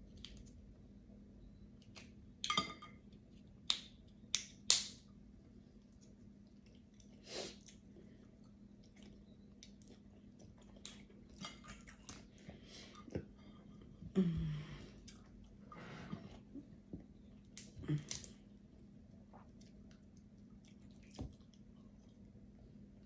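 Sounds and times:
light chewing: 5.4s - 14.1s, 14.7s - 23.0s.

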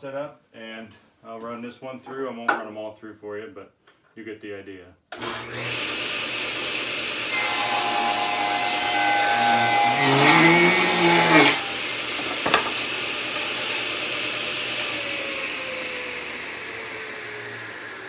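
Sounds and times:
table saw ripping board: 5.2s - 15.2s.

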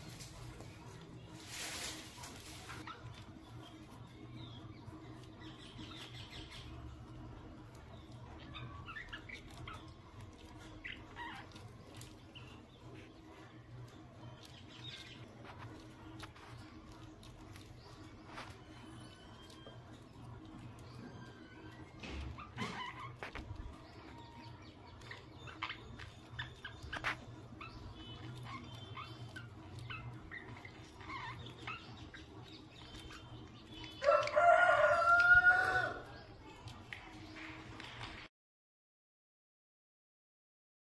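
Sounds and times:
budgerigars chirping: 7.8s - 13.4s, 20.8s - 34.1s.

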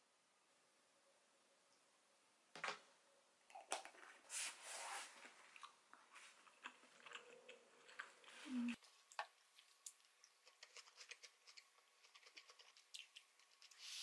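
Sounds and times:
soft chewing: 5.1s - 14.0s.

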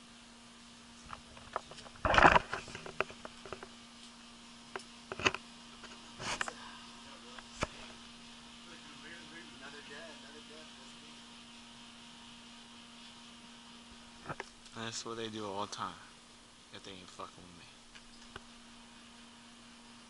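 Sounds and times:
faint steady hum: 0.0s - 20.0s
camera rubbing on shade-cloth fence: 0.9s - 6.6s, 11.0s - 15.8s.

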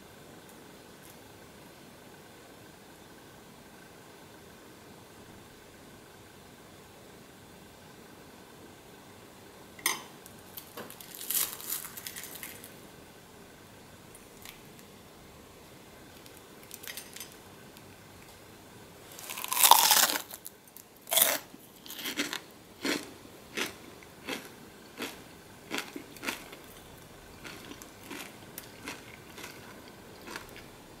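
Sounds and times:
fried coating crunching: 10.6s - 12.7s, 19.1s - 30.7s.

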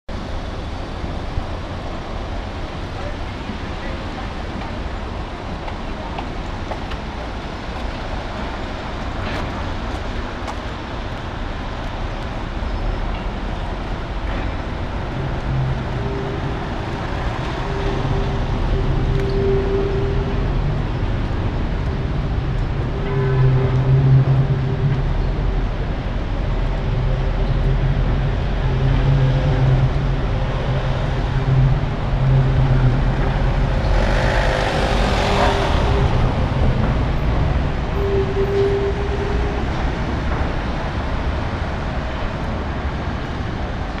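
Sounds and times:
road traffic: 0.1s - 44.0s
suspension railway car rumbling: 0.1s - 44.0s
vehicle passing: 28.5s - 37.7s.

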